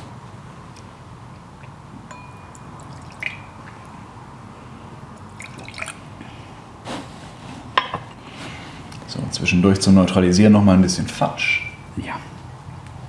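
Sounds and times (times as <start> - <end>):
liquid dripping into glasses: 1.6 - 4.0, 5.2 - 6.0.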